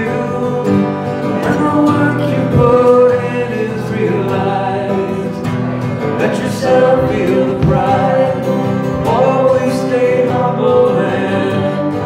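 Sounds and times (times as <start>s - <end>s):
acoustic guitar: 0.0s - 12.0s.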